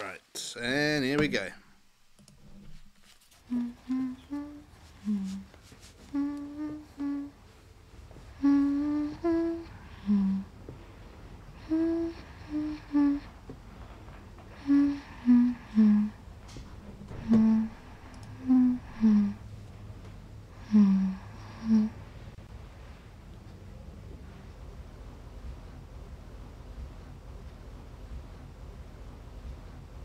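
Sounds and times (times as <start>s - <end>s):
person humming short phrases: 3.4s - 5.5s, 6.1s - 7.4s, 8.4s - 10.5s, 11.6s - 13.3s, 14.6s - 16.2s, 17.2s - 17.8s, 18.4s - 19.4s, 20.6s - 22.0s.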